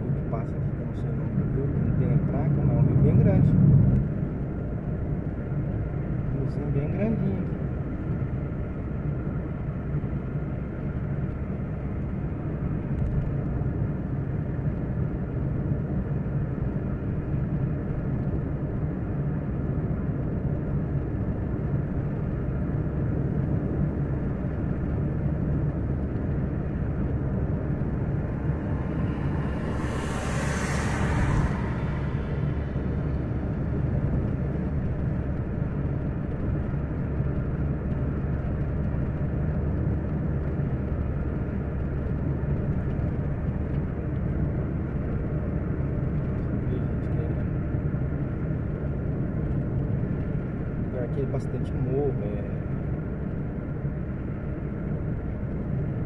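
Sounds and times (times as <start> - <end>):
car road and engine rumble: 0.0 - 56.0
rushing whoosh: 26.4 - 35.4.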